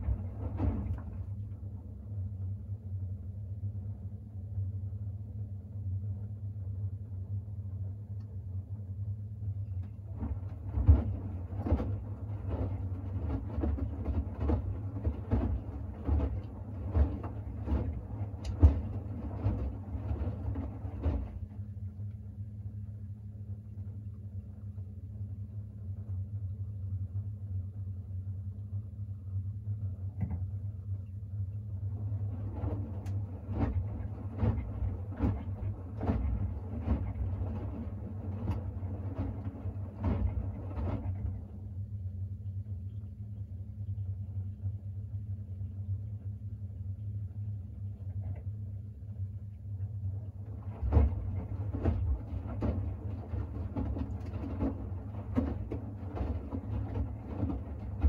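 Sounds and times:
washing machine hum: 0:00.0 - 0:58.0
wet laundry and water splashing: 0:10.1 - 0:21.6, 0:32.0 - 0:41.5, 0:50.4 - 0:58.0.

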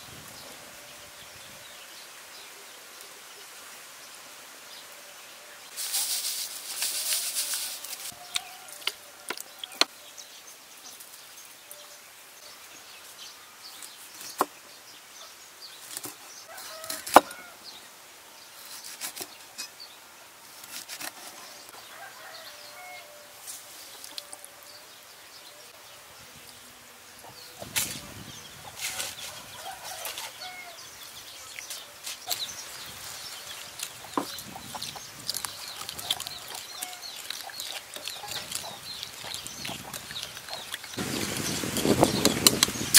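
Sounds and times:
rustling: 0:05.7 - 0:08.9, 0:31.5 - 0:42.9.

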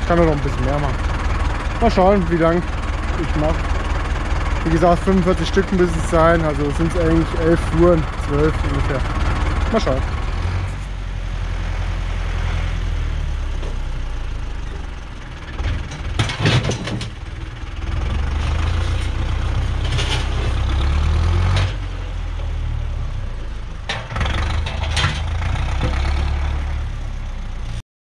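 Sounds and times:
tractor diesel engine revving: 0:00.0 - 0:27.8
concrete blocks clanking in bucket: 0:16.2 - 0:17.1, 0:23.9 - 0:25.3.

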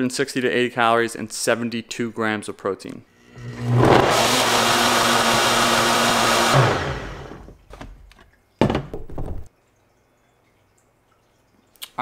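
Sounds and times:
blender running: 0:03.2 - 0:07.6.

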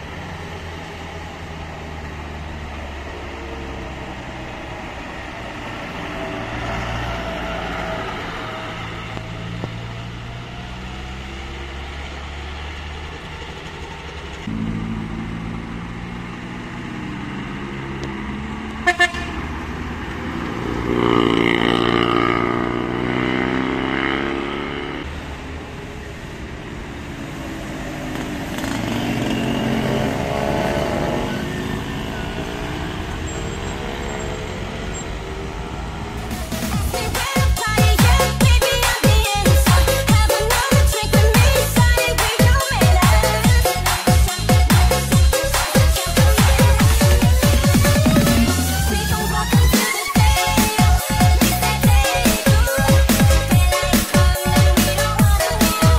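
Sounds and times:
vehicles driving past: 0:00.0 - 0:55.9
short horn toots: 0:18.8 - 0:19.4.

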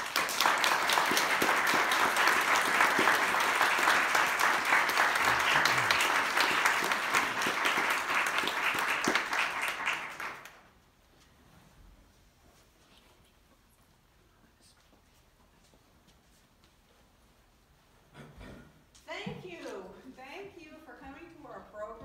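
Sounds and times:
audience applauding: 0:00.0 - 0:10.7.

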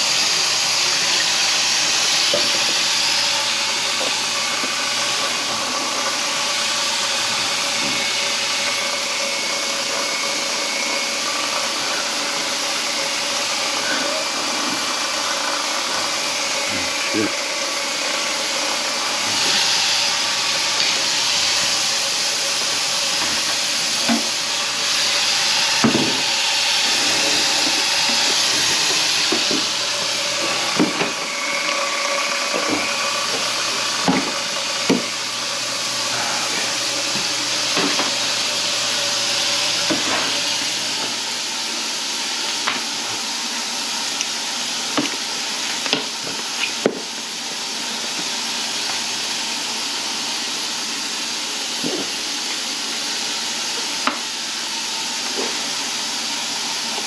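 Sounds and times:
rushing hiss of water: 0:00.0 - 0:42.4
machine hum: 0:00.0 - 0:57.0.

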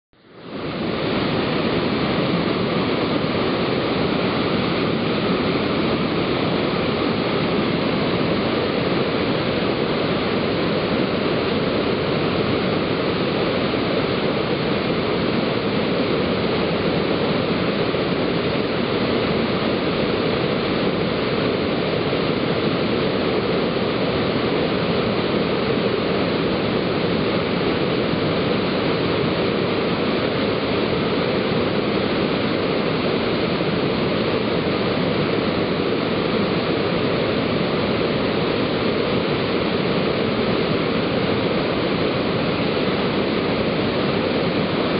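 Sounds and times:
waterfall rushing: 0:00.4 - 0:44.9.

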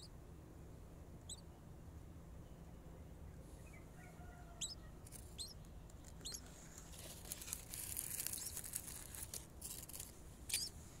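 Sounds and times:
nestling bird squeaking: 0:01.3 - 0:01.5, 0:03.7 - 0:06.4, 0:07.9 - 0:09.1, 0:09.9 - 0:10.8
dry grass rustling: 0:06.3 - 0:11.0.

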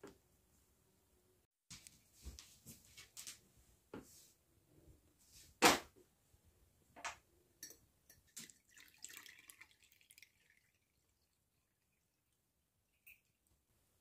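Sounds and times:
liquid trickling through cloth: 0:08.3 - 0:13.6.

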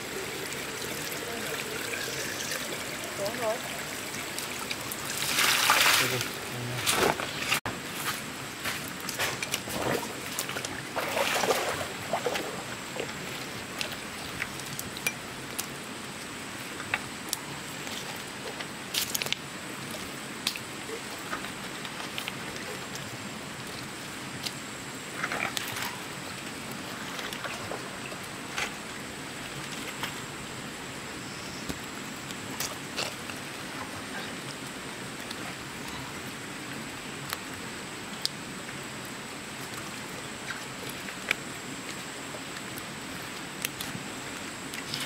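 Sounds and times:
water sloshing and splashing: 0:00.0 - 0:07.6, 0:08.7 - 0:15.8, 0:25.1 - 0:30.4
steady background noise: 0:00.0 - 0:45.0.

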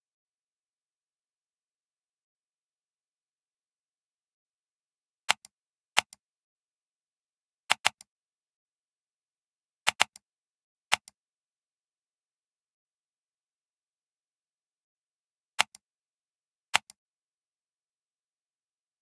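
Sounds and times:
computer mouse button clicks: 0:07.7 - 0:08.1, 0:09.9 - 0:10.2, 0:16.8 - 0:17.0.

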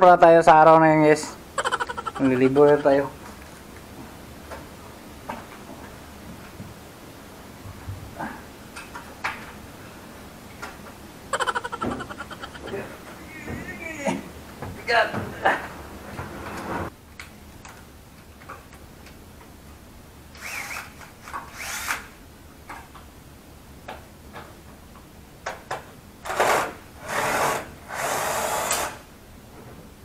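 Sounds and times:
cordless drill whining: 0:20.4 - 0:20.9, 0:21.5 - 0:22.0.

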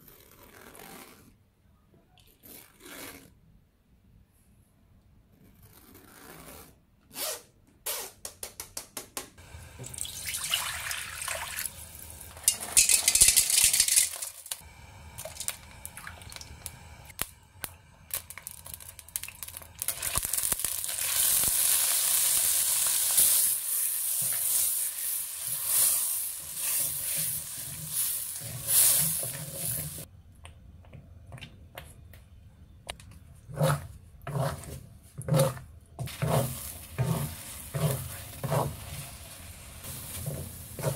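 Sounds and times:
oil sizzling in a wok: 0:09.4 - 0:30.1, 0:36.1 - 0:40.9
spatula stirring thick paste: 0:33.4 - 0:40.9.

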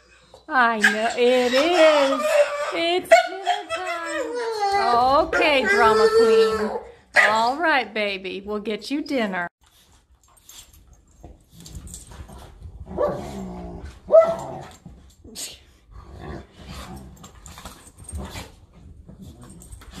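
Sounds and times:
dog barking: 0:07.2 - 0:07.4, 0:14.1 - 0:14.4
dogs growling: 0:11.6 - 0:15.0, 0:15.8 - 0:20.0.

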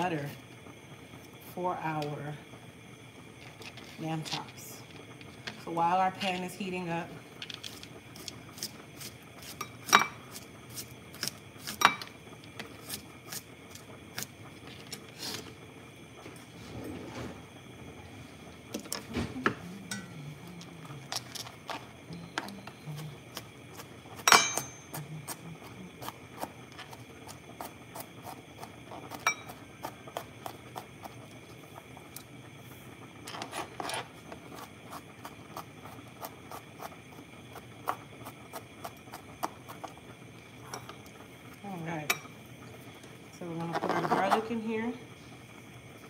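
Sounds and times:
ringing clank: 0:19.9 - 0:20.2, 0:24.3 - 0:24.8.

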